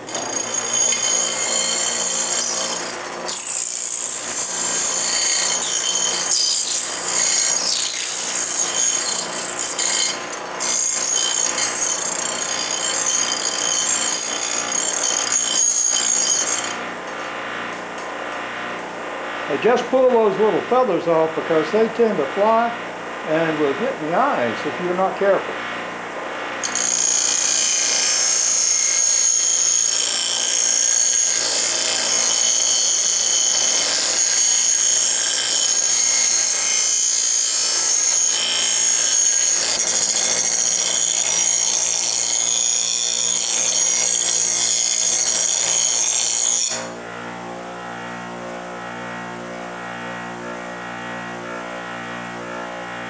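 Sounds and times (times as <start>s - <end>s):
bench grinder screeching on steel: 0.0s - 16.9s, 26.6s - 47.0s
grinder running free hum: 0.0s - 53.0s.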